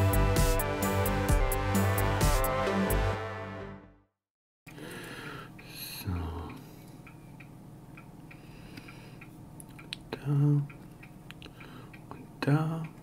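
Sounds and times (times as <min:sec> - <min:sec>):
faint regular ticking: 0:04.7 - 0:13.0.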